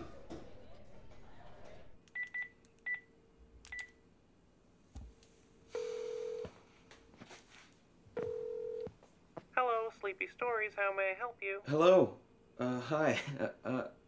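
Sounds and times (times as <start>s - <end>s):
ringback tone ringing: 5.8s - 6.5s.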